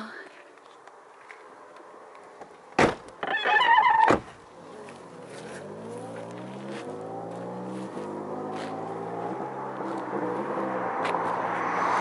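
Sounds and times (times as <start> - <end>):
vehicle engine running: 4.6 - 11.6.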